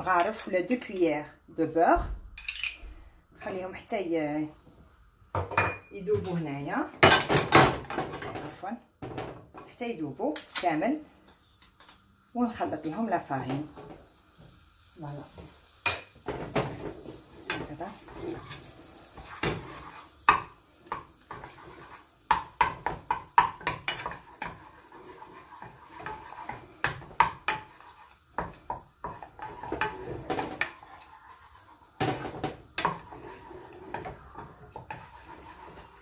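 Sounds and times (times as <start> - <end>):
wooden spoon scraping a saucepan: 16.2 - 36.0.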